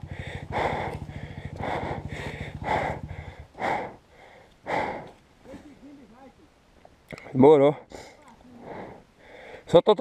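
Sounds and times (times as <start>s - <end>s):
person panting hard: 0.0s - 5.2s, 7.9s - 9.7s
dirt bike engine idling: 0.0s - 6.2s.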